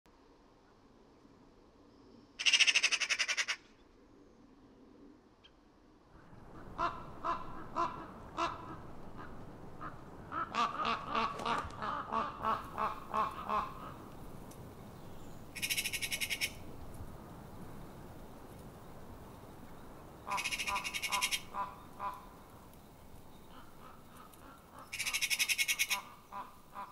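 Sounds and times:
magpie chattering rattle: 2.4s - 3.6s, 15.4s - 16.7s, 20.2s - 22.3s, 23.4s - 26.5s
magpies harsh calls: 2.4s - 3.7s, 6.6s - 14.5s, 15.4s - 16.8s, 20.2s - 26.9s.

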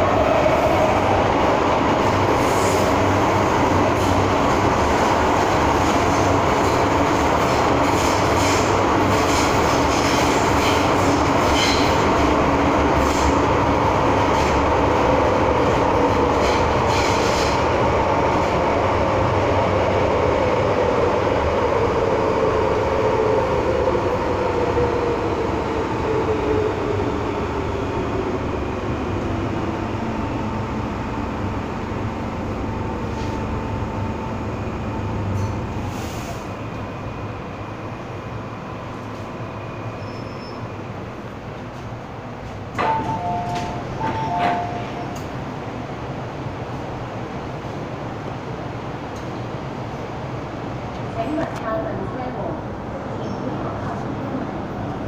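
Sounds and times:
train rattling: 0.0s - 55.0s
train wheels rumbling on rail: 0.0s - 55.0s.

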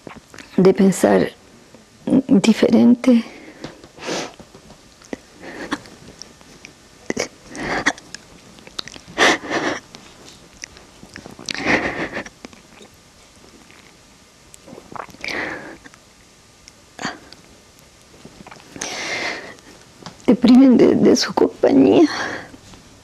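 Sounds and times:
sniffs and shaky breaths: 5.1s - 13.7s, 18.3s - 19.9s
woman crying quietly: 9.2s - 9.9s.

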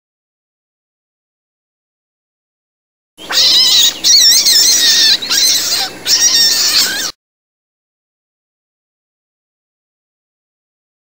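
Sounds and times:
animal high wavering cries: 3.2s - 7.2s.

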